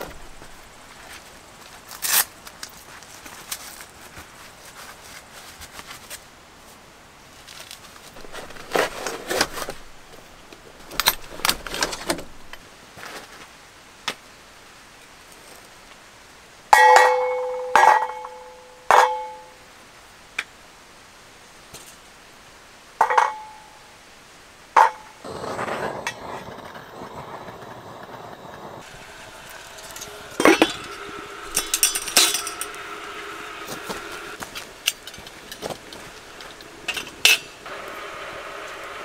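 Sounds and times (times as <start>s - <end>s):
rustling of gloves and gear: 0.0s - 13.6s, 31.8s - 37.4s.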